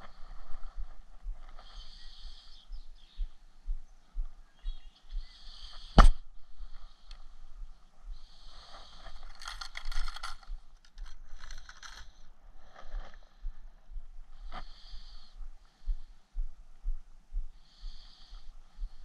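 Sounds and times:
rustling and scraping of fishing line: 8.5 - 13.3.

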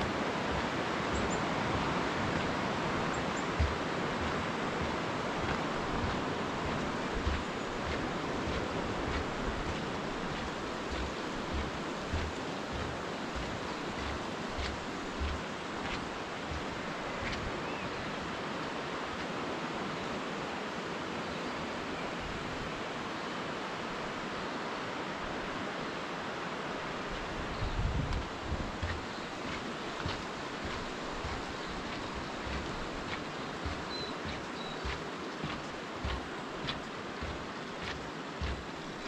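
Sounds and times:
footsteps on wooden bridge deck: 0.0 - 19.4, 27.1 - 39.0
river rushing: 0.0 - 39.0
wind: 0.0 - 39.0.

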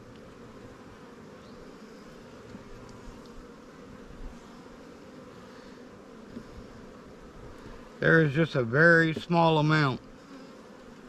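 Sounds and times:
honeybees buzzing: 0.0 - 11.0.

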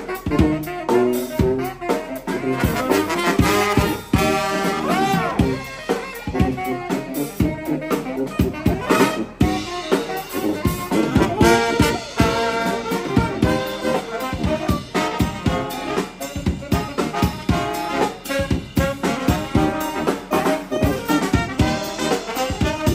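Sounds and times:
bass horn: 0.0 - 22.9
drum kit beat: 0.0 - 22.9
saxophones: 0.0 - 22.9
trombone: 0.0 - 22.9
trumpet: 0.0 - 22.9.

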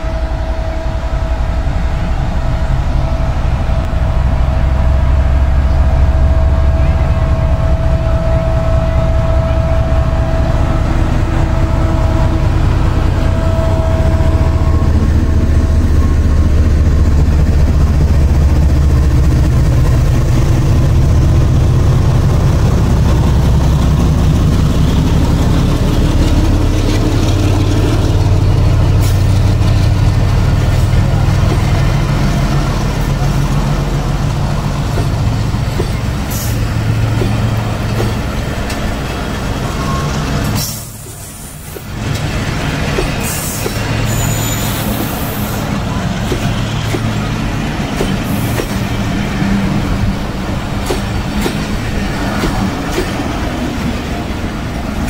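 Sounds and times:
diesel locomotive running: 0.0 - 55.0
train coaches rolling on rails: 0.0 - 55.0.

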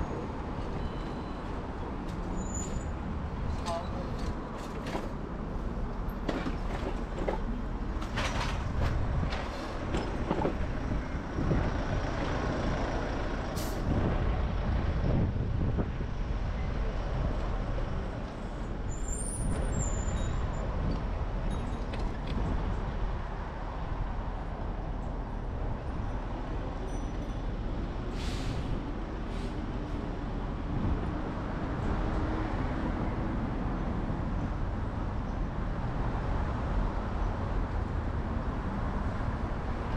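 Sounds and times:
traffic rumble: 0.0 - 39.9
short sharp hisses: 28.1 - 28.7.

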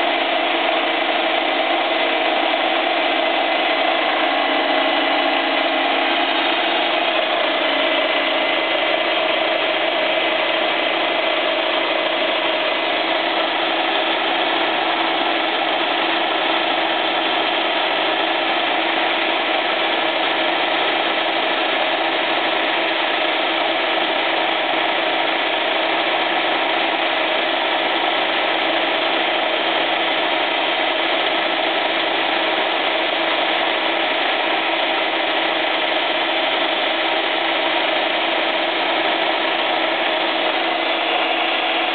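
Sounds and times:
constant hum: 0.0 - 22.8
milling machine cutting metal: 0.0 - 41.9.

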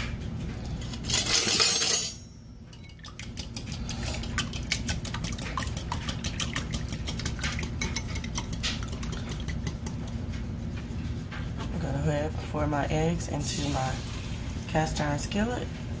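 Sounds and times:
whisk beating eggs in bowl: 2.7 - 12.3.

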